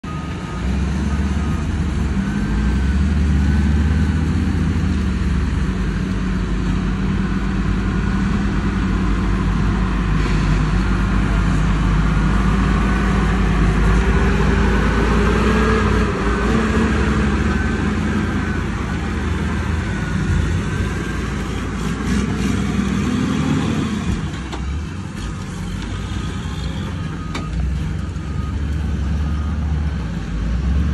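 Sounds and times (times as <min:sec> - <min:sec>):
heavy diesel truck engine driving: 0:00.0 - 0:30.9.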